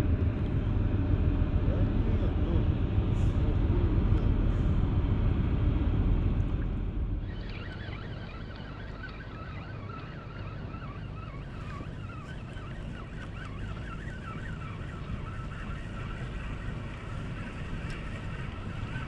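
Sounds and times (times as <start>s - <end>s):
wind and water rumble: 0.0s - 19.0s
spinning reel whirring: 7.2s - 19.0s.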